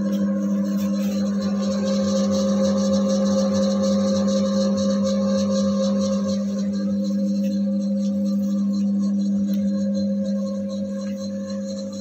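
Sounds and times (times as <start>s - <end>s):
mixer motor humming: 0.0s - 12.0s.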